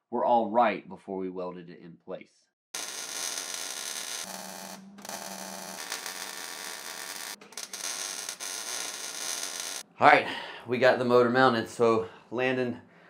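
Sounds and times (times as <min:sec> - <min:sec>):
welding arc crackling and hissing: 0:02.8 - 0:09.8.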